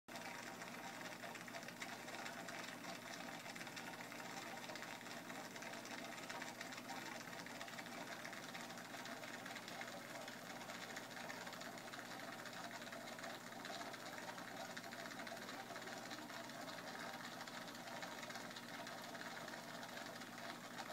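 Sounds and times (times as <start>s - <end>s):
aquarium pump humming: 0.1s - 20.9s.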